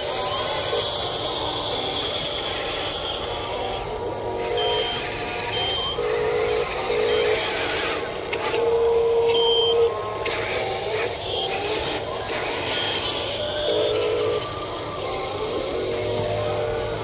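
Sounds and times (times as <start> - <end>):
long steady electronic tone: 0.0 - 17.0
small electric motors running: 0.0 - 17.0
short electronic beeps: 4.6 - 6.1, 8.4 - 10.3.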